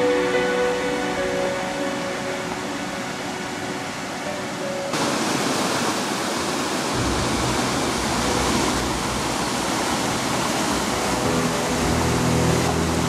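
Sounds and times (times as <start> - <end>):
water rushing over weir: 0.0 - 13.0
deep rumble: 7.0 - 13.0.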